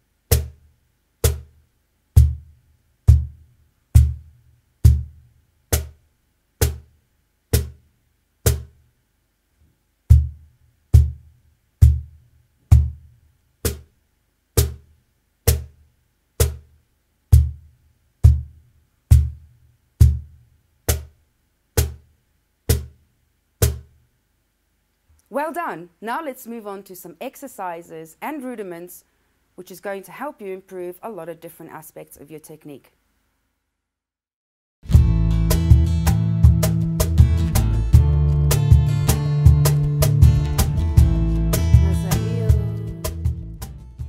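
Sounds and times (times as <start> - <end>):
cajon strokes with deep boom: 1.2 - 6.0, 10.1 - 13.9, 17.3 - 21.2, 34.9 - 44.0.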